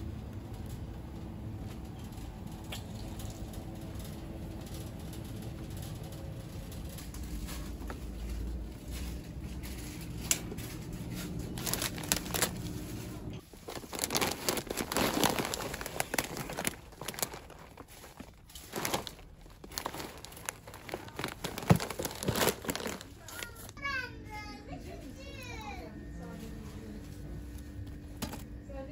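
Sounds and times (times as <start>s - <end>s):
low steady hum: 0.0s - 28.9s
plastic bags crinkling: 1.9s - 23.8s.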